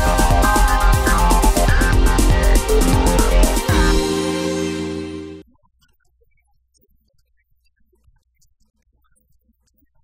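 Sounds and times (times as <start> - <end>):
held music chord: 0.0 - 5.4.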